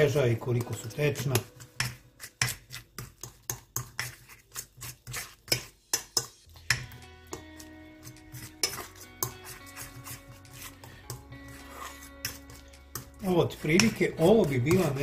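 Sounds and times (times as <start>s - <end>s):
fork clinking in steel bowl: 8.3s - 10.2s.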